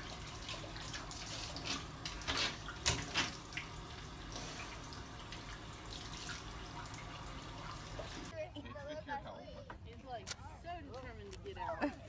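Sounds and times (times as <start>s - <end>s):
bathtub tap running: 0.0s - 8.3s.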